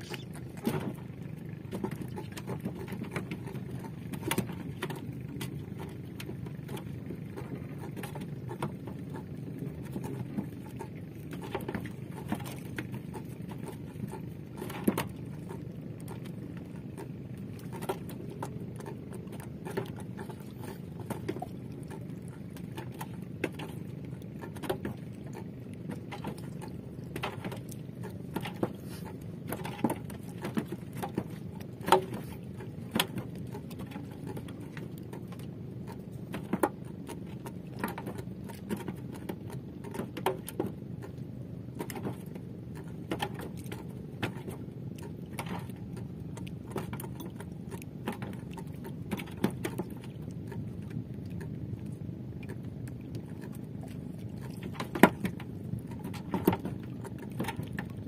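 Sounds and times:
steady low rumble: 40.7s - 58.0s.

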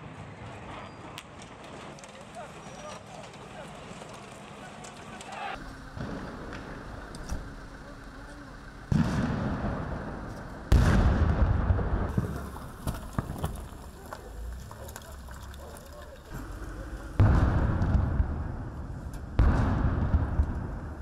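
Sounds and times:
loud rumbling bangs: 5.1s - 21.0s.

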